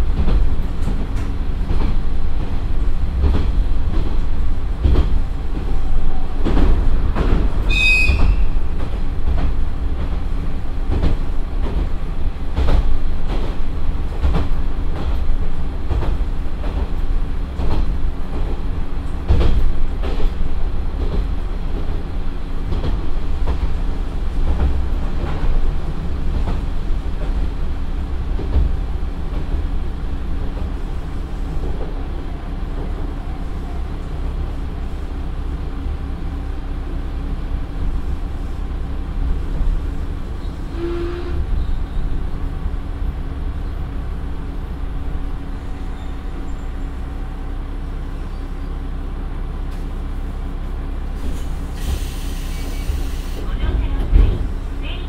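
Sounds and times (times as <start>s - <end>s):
railcar low rumble: 0.0s - 55.0s
high squeal: 7.7s - 8.5s.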